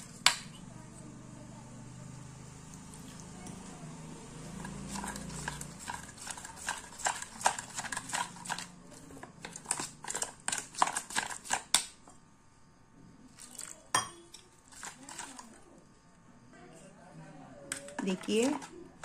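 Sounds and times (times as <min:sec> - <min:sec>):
spoon scraping metal bowl: 0:04.5 - 0:11.7, 0:17.7 - 0:18.8.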